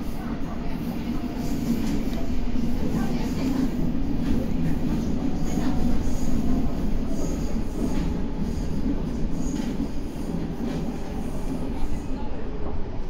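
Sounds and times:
wheels rumbling on rail: 0:00.0 - 0:13.0.

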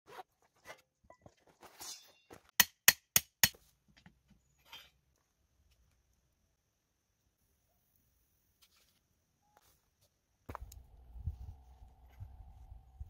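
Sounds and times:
metal scrape: 0:01.5 - 0:02.5, 0:04.5 - 0:05.0.

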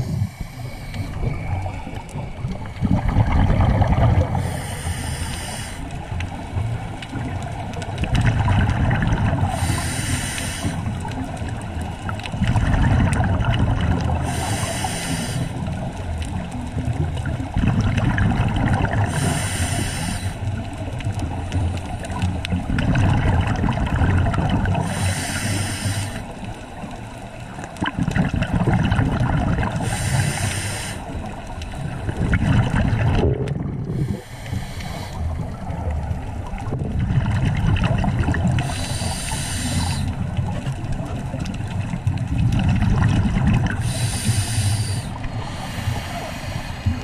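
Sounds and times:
regulator inhale hiss: 0:00.0 - 0:02.0, 0:04.4 - 0:06.3, 0:09.5 - 0:11.2, 0:14.2 - 0:15.9, 0:19.0 - 0:20.6, 0:24.8 - 0:26.5, 0:29.7 - 0:32.1, 0:33.9 - 0:35.6, 0:38.6 - 0:40.2, 0:43.7 - 0:47.0
exhaled bubbles gurgling: 0:00.0 - 0:47.0.

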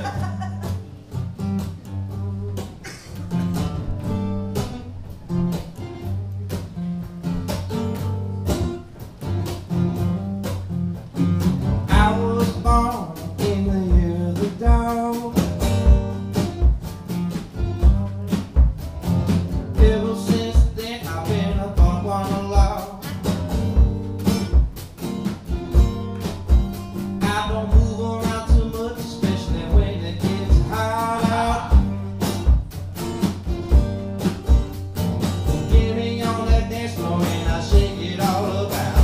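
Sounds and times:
acoustic guitars strumming: 0:00.0 - 0:39.0
bass drum beating: 0:00.0 - 0:39.0
man singing: 0:11.9 - 0:15.6, 0:19.7 - 0:23.2, 0:27.2 - 0:32.1, 0:35.4 - 0:39.0.

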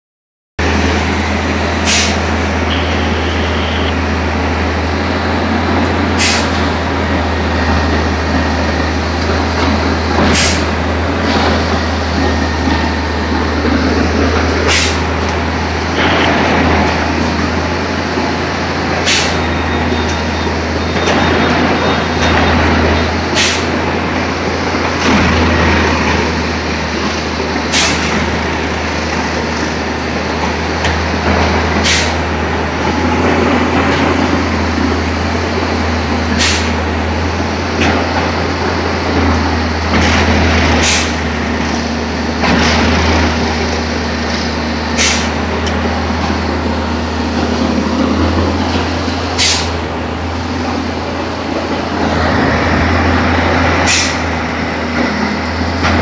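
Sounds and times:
machine engine droning: 0:00.6 - 0:56.0
air hiss bursts: 0:49.4 - 0:49.8, 0:53.9 - 0:54.2.

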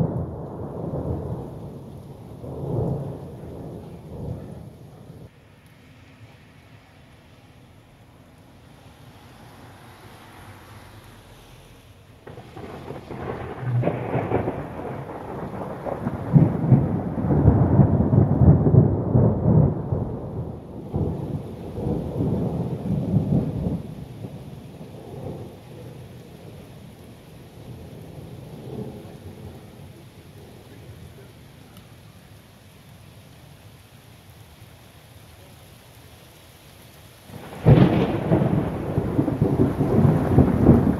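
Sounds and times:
thunder rumbling: 0:00.0 - 0:05.3, 0:12.2 - 0:31.3, 0:37.3 - 0:40.9
steady rain: 0:00.0 - 0:40.9.

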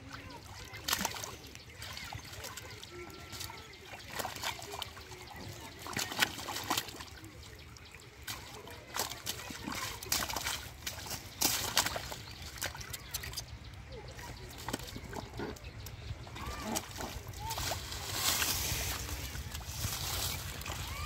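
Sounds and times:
catfish thrashing in muddy water: 0:00.0 - 0:13.6, 0:14.3 - 0:21.0.

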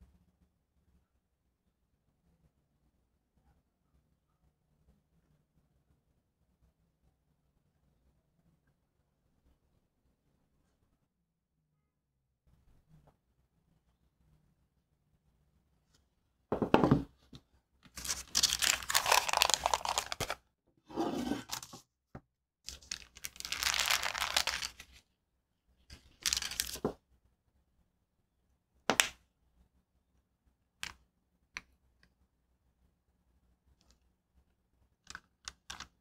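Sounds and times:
parchment paper crinkling: 0:17.9 - 0:20.4, 0:22.7 - 0:25.0, 0:25.9 - 0:26.8.

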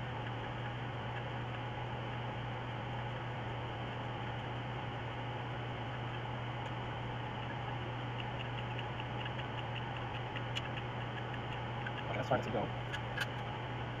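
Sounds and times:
low hum with hiss: 0:00.0 - 0:14.0
sharp click: 0:12.9 - 0:13.4.

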